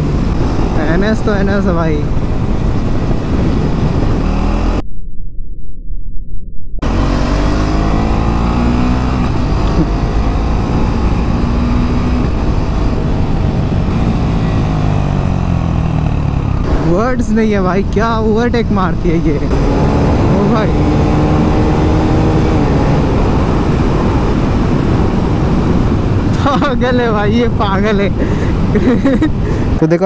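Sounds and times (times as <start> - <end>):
wind rush: 0.0 - 29.8
motorcycle engine running hard: 6.8 - 18.2, 19.2 - 29.7.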